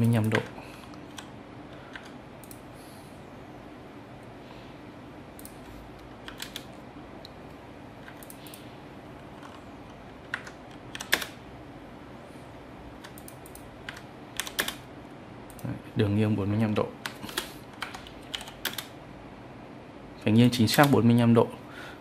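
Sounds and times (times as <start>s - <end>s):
keyboard keystrokes and mouse clicks: 0.0s - 2.6s, 5.4s - 7.4s, 8.0s - 8.7s, 9.3s - 11.4s, 13.0s - 14.9s, 17.0s - 19.0s.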